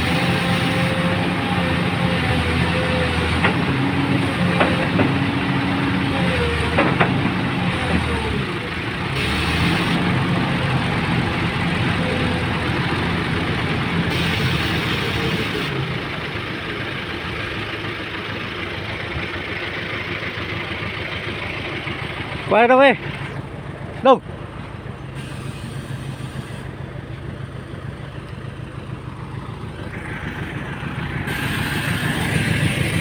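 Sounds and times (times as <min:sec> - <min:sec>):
gliding hydraulic whines: 0:00.0 - 0:15.9, 0:29.6 - 0:33.0
excavator diesel engine running: 0:00.0 - 0:33.0.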